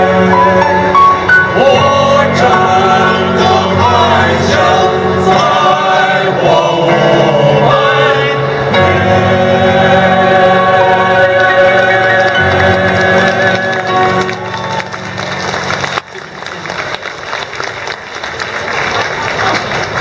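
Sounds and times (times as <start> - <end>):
male vocal group singing: 0.0 - 0.8, 1.5 - 14.2
electronic keyboard accompaniment: 0.0 - 16.5.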